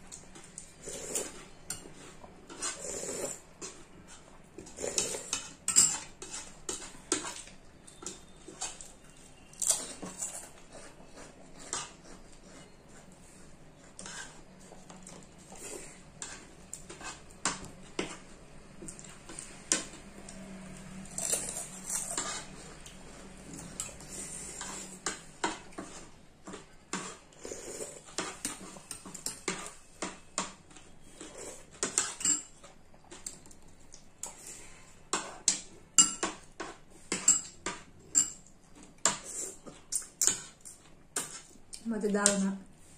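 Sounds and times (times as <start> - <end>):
slurping and chewing: 0.1 - 29.8
spoons clinking on ceramic plates: 5.0 - 8.8, 31.8 - 32.6, 35.5 - 36.4, 37.1 - 38.5.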